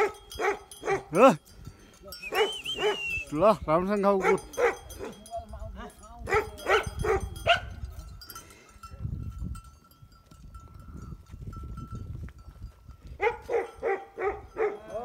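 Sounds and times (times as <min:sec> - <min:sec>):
dog barking: 0:00.0 - 0:01.2, 0:02.3 - 0:03.1, 0:04.2 - 0:05.2, 0:06.3 - 0:07.8, 0:13.2 - 0:15.0
wind rumbling on microphone: 0:04.5 - 0:14.7.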